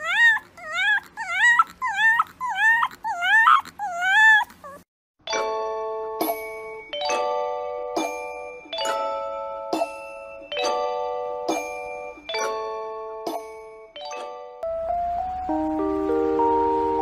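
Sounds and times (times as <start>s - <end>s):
puppy howling: 0.0s - 4.9s
ringing chime tones: 5.3s - 14.7s.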